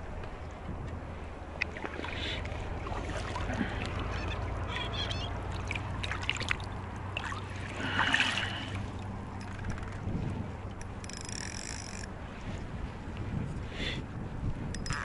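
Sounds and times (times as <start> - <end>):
water splashes and drips: 1.5 - 10.9.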